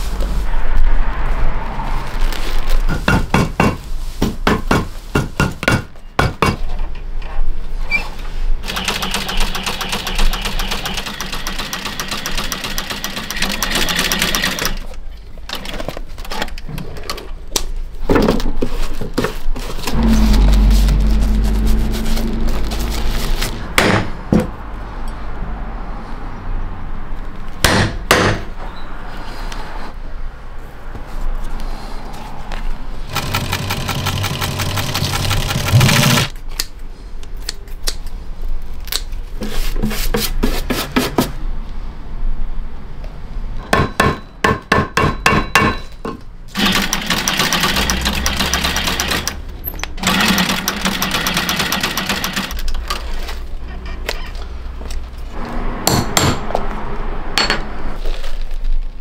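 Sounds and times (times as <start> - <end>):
sewing machine stitching: 8.6 - 14.9, 33.1 - 36.4, 46.6 - 49.4, 50.0 - 53.3.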